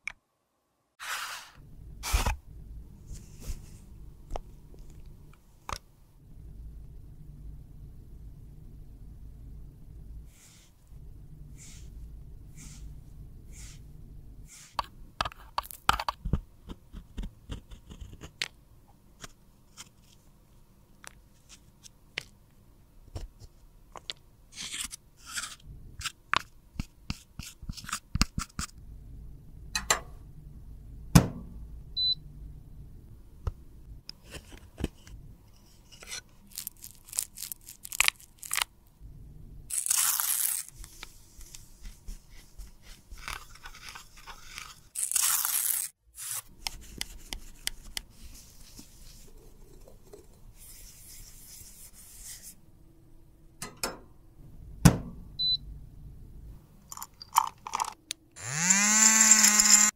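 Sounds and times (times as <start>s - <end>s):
metal spatula scraping powder: 1.0s - 2.3s, 14.5s - 14.8s.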